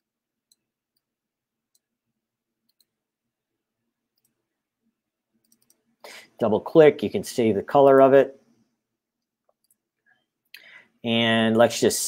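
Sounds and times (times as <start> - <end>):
computer mouse clicks: 2.6 - 3.0, 4.2 - 4.4, 5.4 - 5.9, 9.2 - 9.8.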